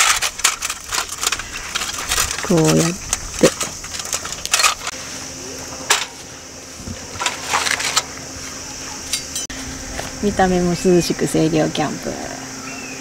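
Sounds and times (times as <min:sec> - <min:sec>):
metal panels clicking and clattering: 0:00.0 - 0:04.9, 0:07.2 - 0:08.1.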